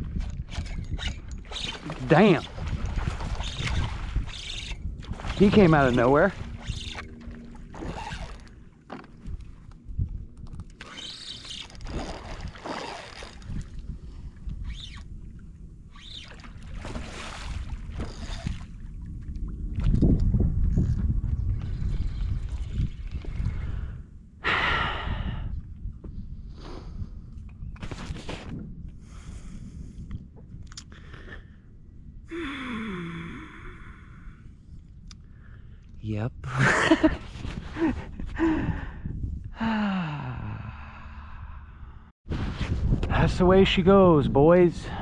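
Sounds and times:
wind rumble on microphone: 0.0 - 45.0
fish thrashing and splashing: 10.8 - 13.7
man sighing: 32.3 - 34.4, 38.4 - 41.6.

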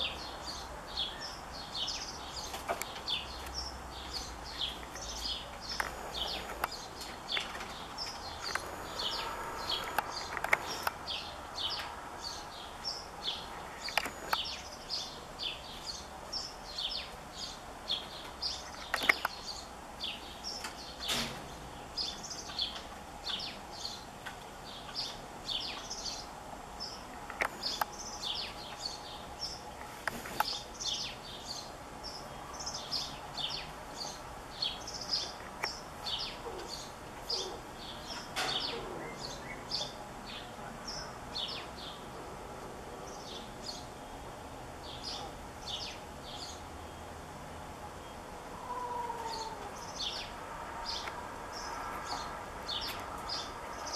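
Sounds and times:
small birds chirping: 0.0 - 42.3, 42.9 - 53.9.

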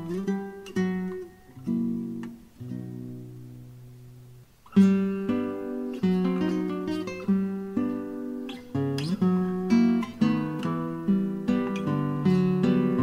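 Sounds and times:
guitar picked notes and chords: 0.0 - 13.0.

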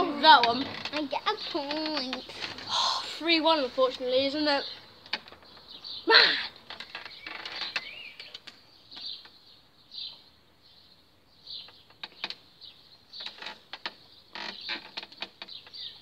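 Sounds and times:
small birds chirping: 0.0 - 16.0
sharp clicks and rustles: 0.2 - 2.7, 3.4 - 5.8, 6.6 - 9.4, 11.6 - 12.5, 13.1 - 16.0.

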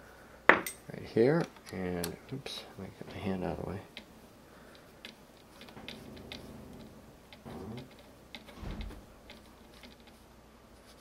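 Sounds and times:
hex key clicking and scraping: 4.7 - 10.2.

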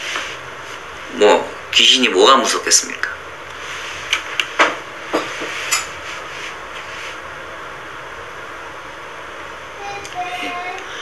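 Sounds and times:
room noise hiss: 0.0 - 11.0
knocks and rubbing on leather chair: 4.5 - 7.1.

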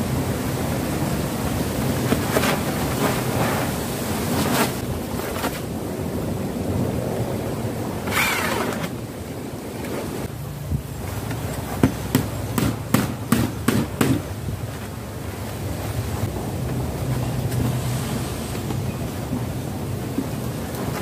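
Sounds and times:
wind on microphone: 0.0 - 12.6.

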